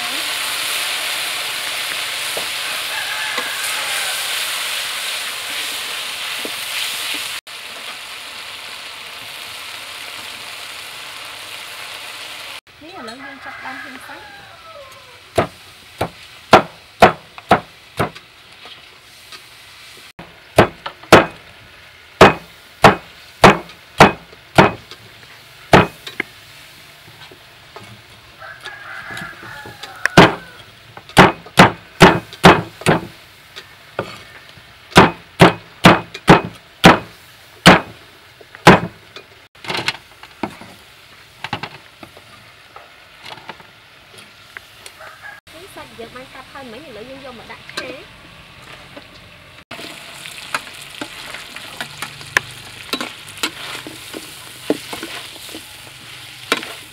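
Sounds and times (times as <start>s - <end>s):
cleaver chopping on wooden block: 15.4s - 18.2s, 35.0s - 37.1s, 37.7s - 37.9s, 38.6s - 38.9s.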